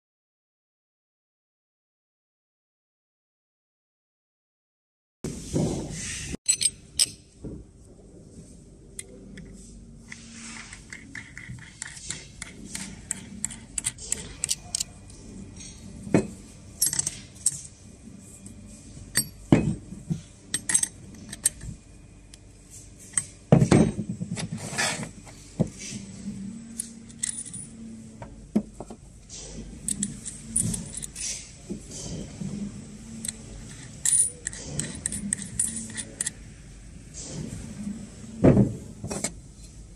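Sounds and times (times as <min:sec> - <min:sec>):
metal hardware clinking: 0:06.5 - 0:07.2, 0:20.5 - 0:21.7, 0:26.8 - 0:27.8, 0:29.9 - 0:31.4, 0:33.2 - 0:36.4.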